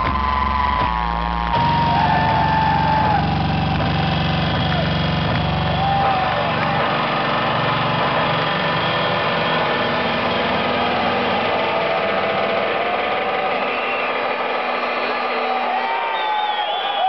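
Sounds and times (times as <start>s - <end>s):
distorted electronic trance music: 0.0s - 17.0s.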